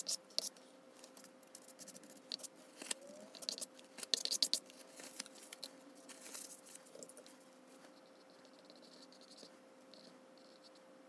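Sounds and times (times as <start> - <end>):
plastic card scraping paint: 1.1 - 7.2.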